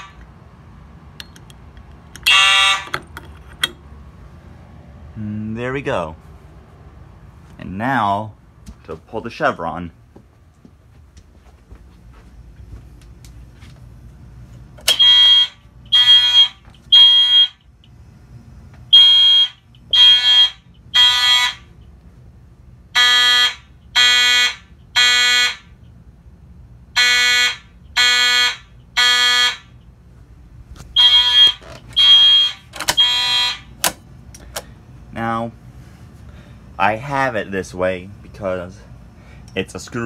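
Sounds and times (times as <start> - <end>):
fire alarm horns blasting: 0.0 - 0.2, 2.2 - 3.0, 14.8 - 17.8, 18.9 - 21.9, 22.9 - 25.9, 26.9 - 29.9, 30.9 - 33.9.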